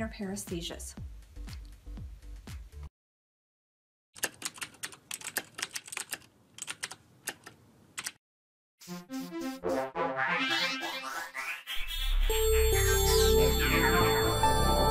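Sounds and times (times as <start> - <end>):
music: 0.0 - 2.9, 8.9 - 14.9
keyboard typing: 4.2 - 8.2.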